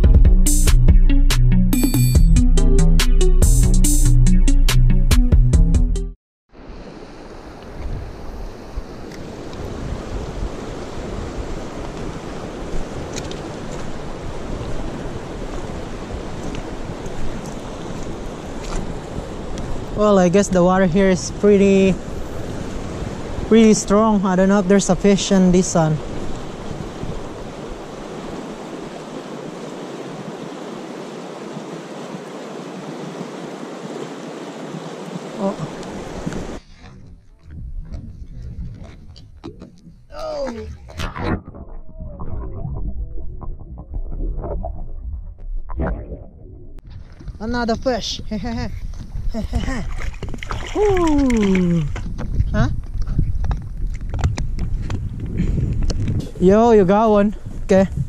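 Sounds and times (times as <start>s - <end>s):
wind on microphone: 6.7s - 58.0s
river rushing over stones: 24.7s - 36.6s.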